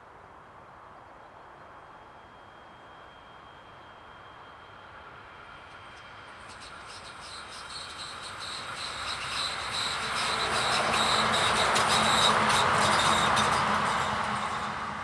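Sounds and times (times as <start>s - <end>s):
train approaching: 1.2s - 15.0s
rails hissing and chattering: 5.8s - 15.0s.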